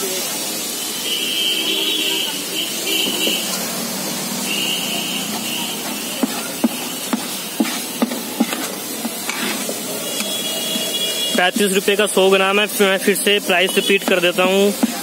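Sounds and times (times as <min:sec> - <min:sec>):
steady hiss: 0:00.0 - 0:15.0
metal spatula scraping pan: 0:06.6 - 0:11.8.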